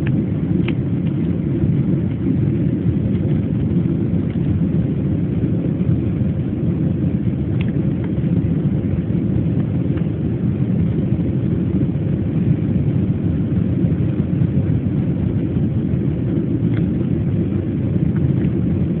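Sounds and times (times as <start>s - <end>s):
jet engine and airflow rush: 0.0s - 19.0s.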